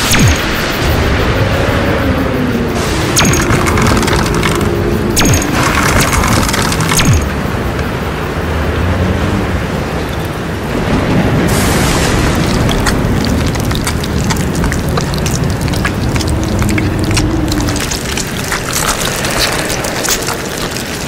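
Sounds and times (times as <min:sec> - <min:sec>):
deep steady rumble: 0:00.8 - 0:21.0
crackle of clicks and rattles: 0:02.7 - 0:08.4, 0:10.0 - 0:21.0
hiss: 0:11.4 - 0:13.1.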